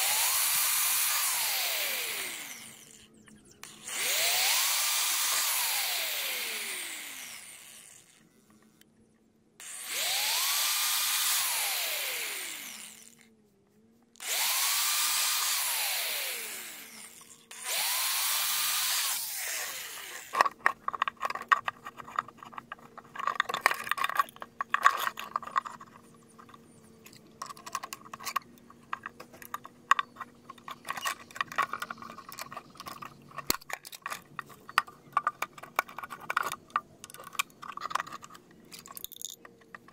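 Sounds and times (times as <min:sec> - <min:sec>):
electric drill motor: 0:00.0 - 0:08.7, 0:09.6 - 0:13.3, 0:14.2 - 0:33.6
plastic pipe pieces clattering: 0:20.2 - 0:39.9.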